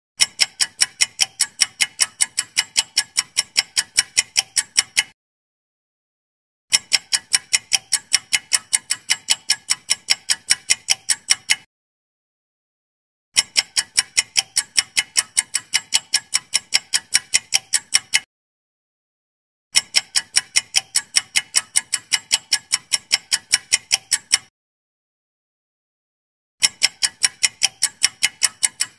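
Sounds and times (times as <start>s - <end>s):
rapid clock ticking: 0.2s - 5.2s, 6.7s - 11.7s, 13.4s - 18.3s, 19.7s - 24.5s, 26.6s - 28.9s.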